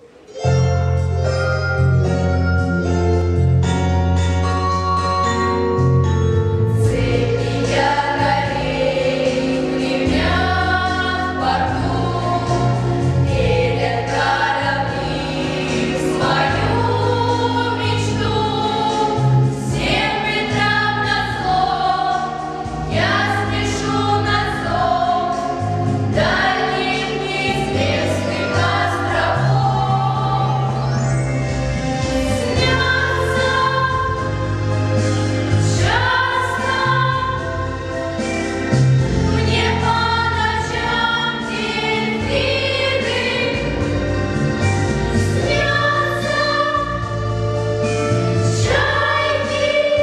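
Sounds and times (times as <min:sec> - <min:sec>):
instrumental backing track: 0:00.0 - 0:50.0
girls singing together: 0:06.8 - 0:30.8, 0:32.4 - 0:34.6, 0:35.4 - 0:37.7, 0:39.4 - 0:43.9, 0:45.3 - 0:47.4, 0:48.4 - 0:50.0.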